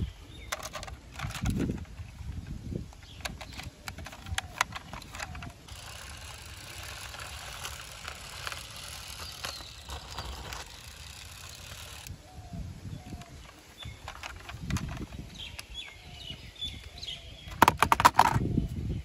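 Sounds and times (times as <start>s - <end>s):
toy bus clicks and knocks: 0.5s - 1.8s, 3.0s - 12.1s, 14.0s - 15.1s, 17.5s - 18.4s.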